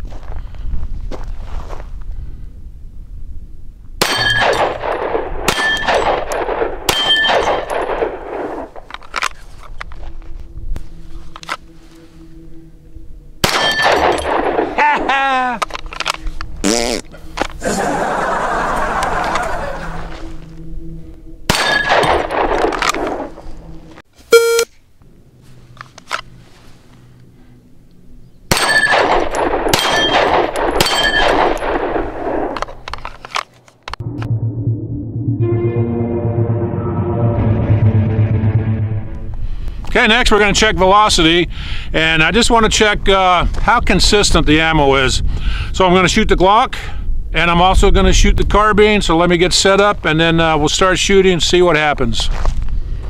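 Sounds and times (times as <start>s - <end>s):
steel plate target ringing: 4.0s - 4.9s, 5.5s - 8.0s, 13.4s - 14.6s, 21.5s - 22.6s, 29.8s - 31.6s
pistol shots: 4.0s - 8.7s, 13.4s - 14.7s, 21.5s - 23.2s, 28.5s - 32.6s.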